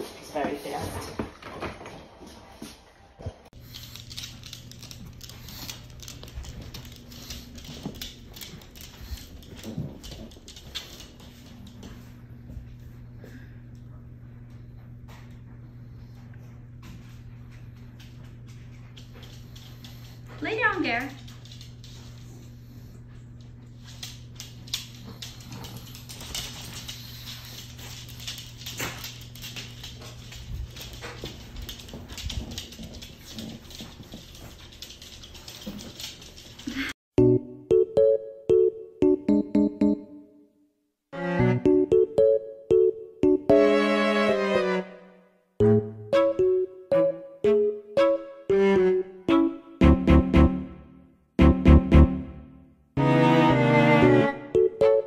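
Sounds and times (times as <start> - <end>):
dog claws clicking on hardwood floor: 3.6 - 11.9, 21.0 - 22.2, 23.8 - 36.8.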